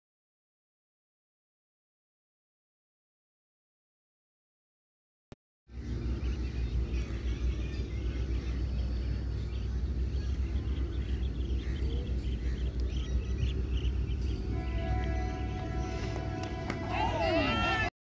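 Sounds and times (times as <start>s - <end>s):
steady low rumble: 5.7s - 17.9s.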